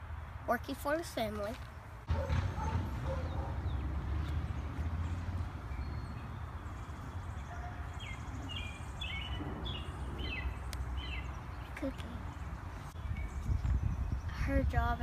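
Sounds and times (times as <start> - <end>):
bird chirping: 1.6 - 14.4
wind rumble on microphone: 2.1 - 15.0.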